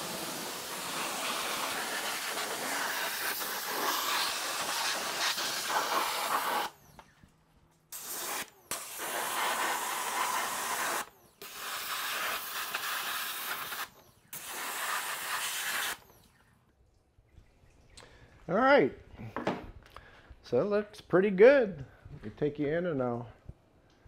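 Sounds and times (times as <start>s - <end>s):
water hissing from hose nozzle: 0.0s - 6.8s, 7.9s - 16.1s.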